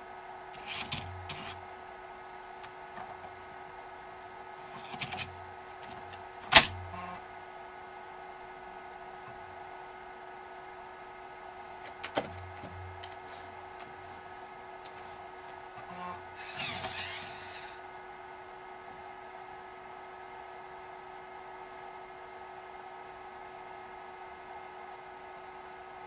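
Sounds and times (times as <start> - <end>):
electrical hum: 0.0 - 26.0
floppy drive ejecting whirr: 0.6 - 1.6, 4.6 - 7.2, 11.8 - 14.3, 14.9 - 17.8.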